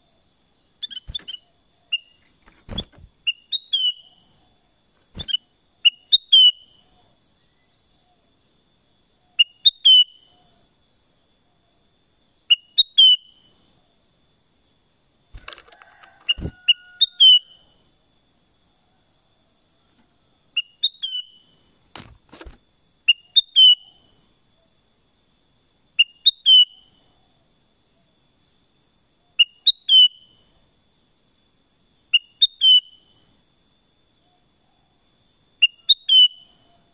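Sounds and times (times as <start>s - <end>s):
bird singing whistled notes: 0.5s - 8.2s, 9.2s - 10.5s, 12.5s - 13.7s, 15.8s - 17.8s, 20.5s - 21.6s, 23.1s - 24.1s, 26.0s - 27.0s, 29.3s - 30.4s, 32.1s - 33.2s, 35.6s - 36.9s.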